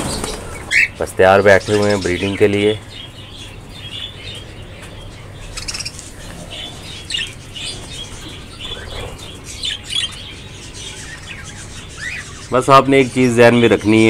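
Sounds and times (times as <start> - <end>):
budgerigars chirping and squawking: 0.0 - 14.0.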